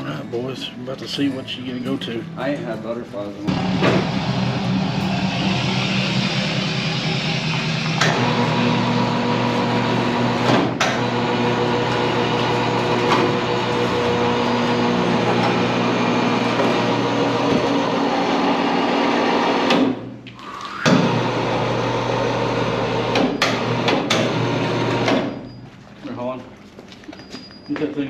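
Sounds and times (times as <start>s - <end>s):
electric hoist motor humming: 3.5s - 25.5s.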